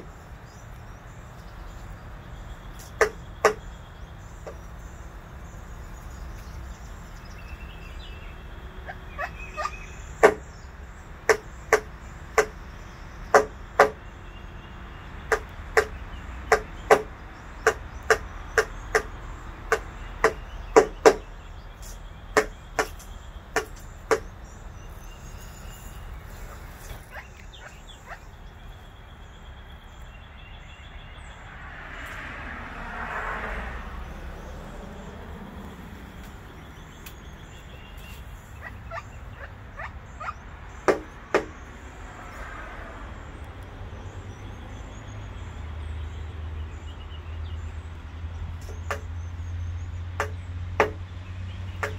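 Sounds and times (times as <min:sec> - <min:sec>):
woodpecker pecking at window: 0:11.3 - 0:12.6, 0:15.3 - 0:19.1, 0:19.7 - 0:24.4.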